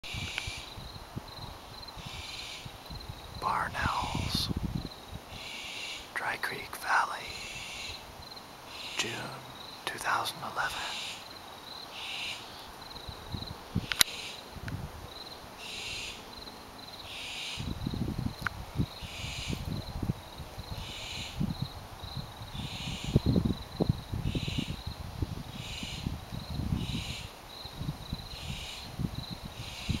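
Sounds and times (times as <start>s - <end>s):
wind rumble on microphone: 0.0s - 5.5s, 12.7s - 15.3s, 17.5s - 30.0s
cricket trill: 0.1s - 30.0s
owls hissing calls: 3.4s - 4.5s, 7.2s - 8.0s, 11.9s - 12.6s.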